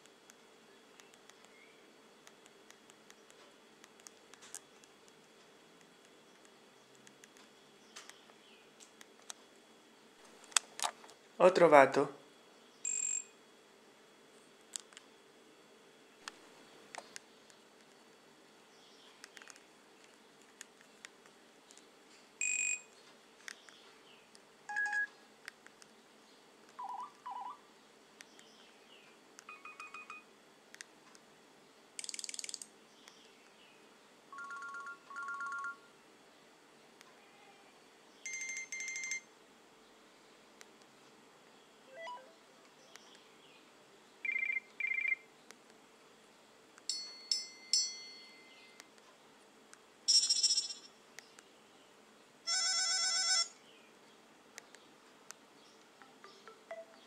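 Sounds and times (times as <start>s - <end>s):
phone ringtone snippets: 26.8s - 27.6s, 34.4s - 35.8s, 38.3s - 39.2s, 50.1s - 50.9s, 52.5s - 53.5s, 56.2s - 57.0s.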